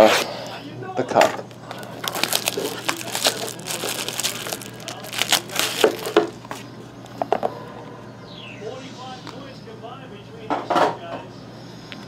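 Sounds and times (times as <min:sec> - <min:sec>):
hands rustling a box: 0:01.5 - 0:06.7
plastic wrap crinkling and tearing: 0:01.5 - 0:06.7.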